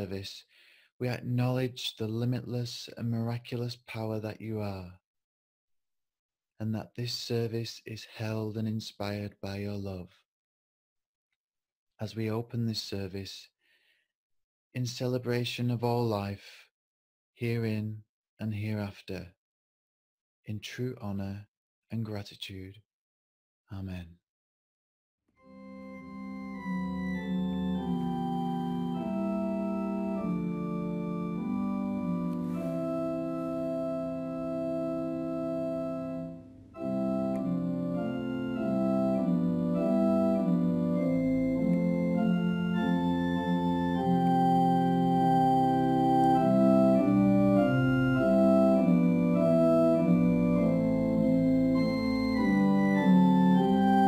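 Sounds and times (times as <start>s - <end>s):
organ playing held chords: 25.4s - 54.0s.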